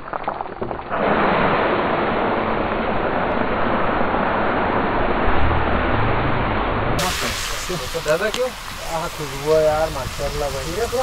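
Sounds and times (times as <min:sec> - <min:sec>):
low rumble: 0:00.2 - 0:08.0
onions sizzling in hot oil: 0:07.0 - 0:11.0.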